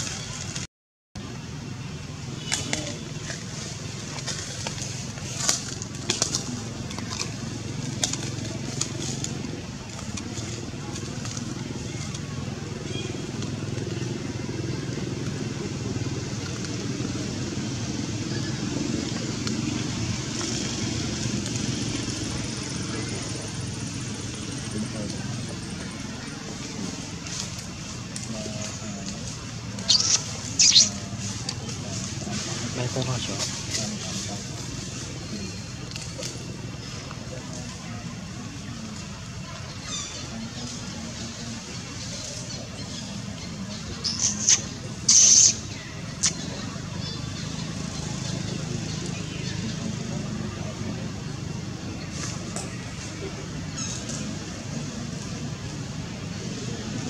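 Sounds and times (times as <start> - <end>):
engine running steadily: 0.0 - 57.0
infant monkey squeaking: 29.8 - 31.0, 44.0 - 46.4
infant monkey shrill squeals: 29.9 - 30.9.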